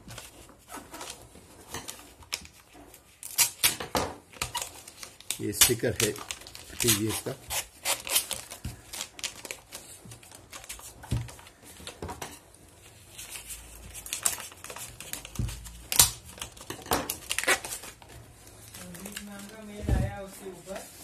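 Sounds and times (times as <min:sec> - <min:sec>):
paper sticker peeling rustles: 0:04.4 - 0:11.0.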